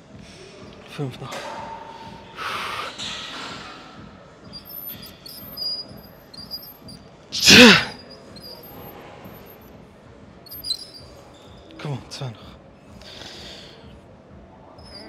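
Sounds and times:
strained grunt of exertion: 0:07.3 - 0:08.0.

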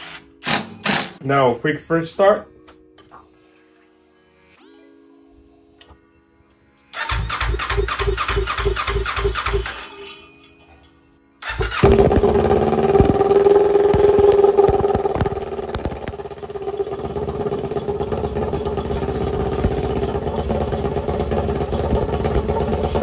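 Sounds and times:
starter motor cranking: 0:07.0 - 0:09.8, 0:11.4 - 0:23.0
motorcycle engine running: 0:11.4 - 0:23.0.

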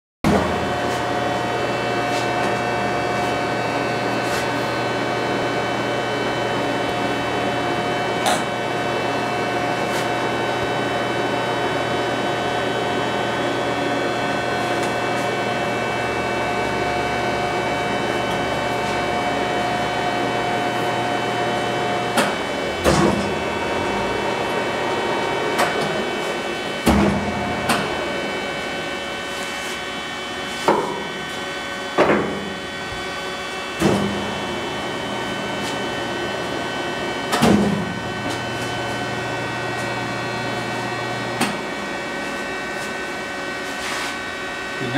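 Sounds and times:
lathe gear whine: 0:00.6 - 0:44.9
low hum: 0:15.9 - 0:28.9
lathe levers clunking: 0:22.2 - 0:26.0.

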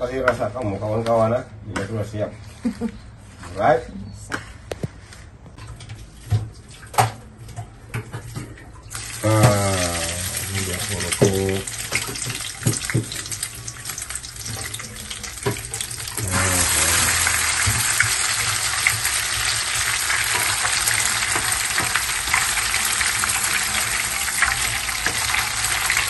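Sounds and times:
leaves frying in hot oil: 0:08.9 - 0:26.0.

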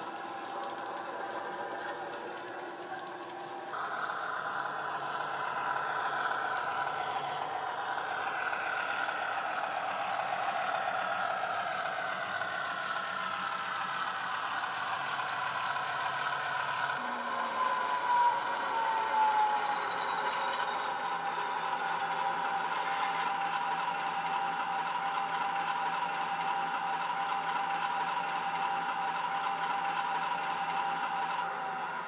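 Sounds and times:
high squeal: 0:00.0 - 0:23.4
model diesel locomotive engine: 0:00.0 - 0:32.0.

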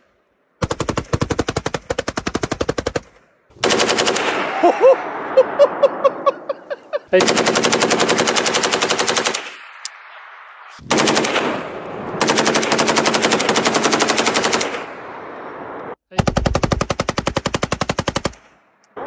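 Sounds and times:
automatic gunfire bursts: 0:00.6 - 0:03.0, 0:03.6 - 0:04.5, 0:07.2 - 0:09.6, 0:10.9 - 0:11.6, 0:12.2 - 0:14.9.

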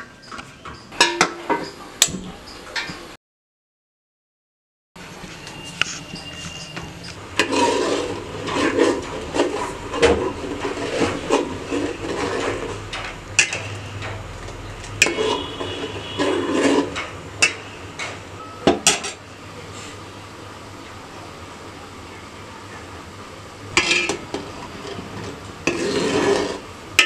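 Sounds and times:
metal spoon stirring in steel pot: 0:05.6 - 0:18.2, 0:23.7 - 0:27.0.

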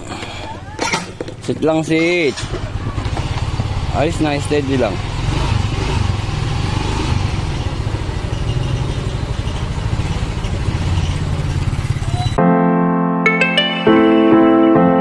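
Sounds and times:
small motorcycle engine running: 0:02.3 - 0:12.4
electric piano music: 0:12.4 - 0:15.0.

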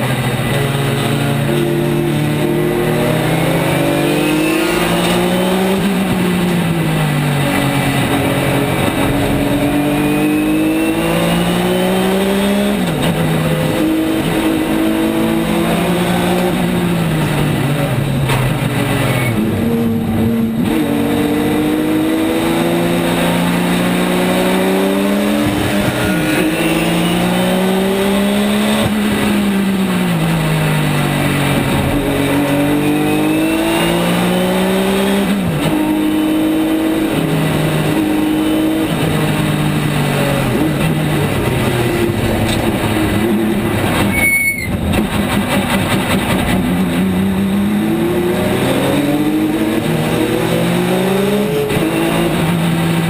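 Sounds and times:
race car engine revving: 0:00.0 - 0:53.0.

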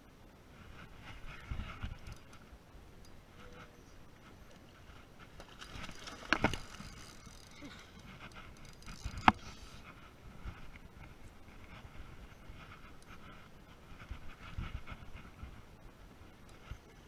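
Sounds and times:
fishing reel clicking: 0:05.9 - 0:07.6, 0:08.5 - 0:09.4.

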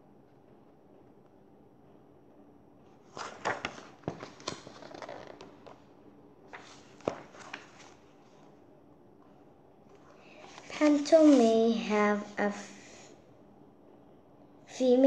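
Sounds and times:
paper pages rustling: 0:03.0 - 0:05.8, 0:06.5 - 0:08.4, 0:09.9 - 0:12.0.

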